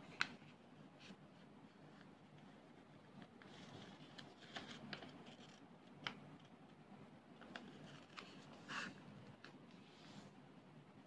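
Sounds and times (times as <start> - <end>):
paper rustling and crinkling: 3.1 - 5.6, 7.4 - 9.8.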